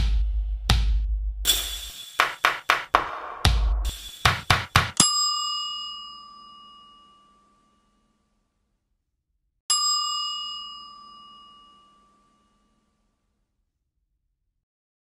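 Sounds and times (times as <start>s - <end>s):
bell-like chime: 5.0s - 8.5s, 9.7s - 13.3s.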